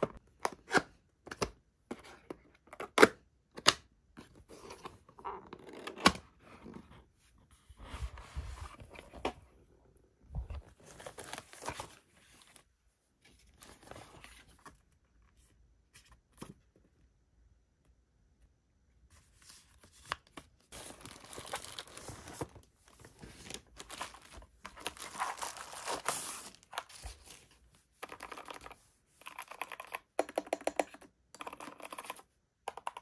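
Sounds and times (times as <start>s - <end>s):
cardboard and paper rustling: 19.1s - 27.8s.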